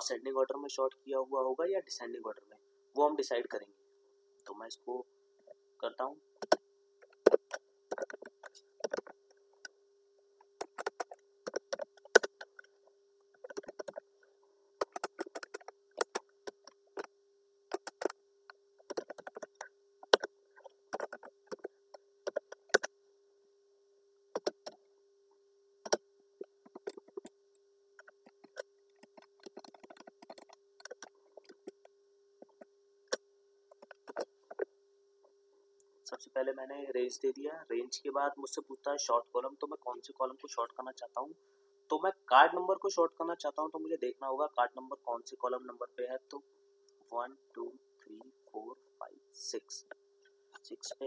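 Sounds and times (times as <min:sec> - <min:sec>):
faint steady tone: 0:00.0 - 0:14.8, 0:15.6 - 0:51.0
keyboard typing: 0:06.4 - 0:09.7, 0:10.5 - 0:12.7, 0:13.4 - 0:14.0, 0:14.8 - 0:17.1, 0:17.7 - 0:18.2, 0:18.8 - 0:22.9, 0:24.4 - 0:24.8, 0:26.6 - 0:27.3, 0:28.0 - 0:34.7.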